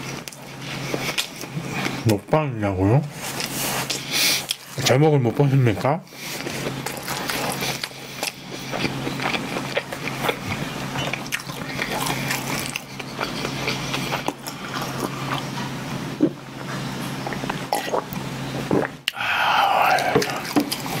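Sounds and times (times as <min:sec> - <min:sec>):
chewing bread: 0:00.0 - 0:02.2, 0:03.2 - 0:21.0
swallowing milk: 0:17.7 - 0:21.0.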